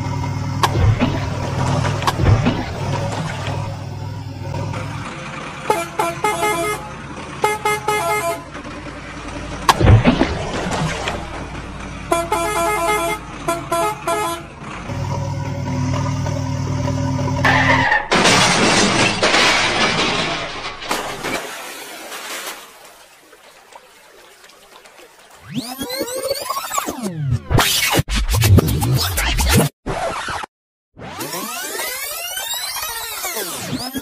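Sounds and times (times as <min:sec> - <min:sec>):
deep truck horn blast: 0:05.6 - 0:08.6, 0:12.0 - 0:17.5.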